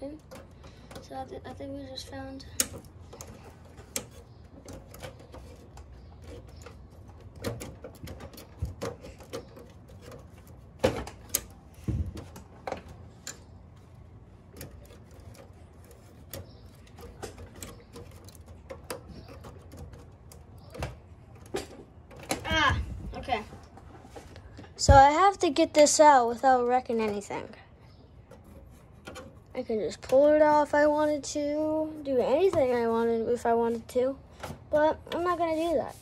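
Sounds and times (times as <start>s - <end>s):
plastic and metal parts clicking: 0.0s - 13.5s, 14.5s - 22.6s.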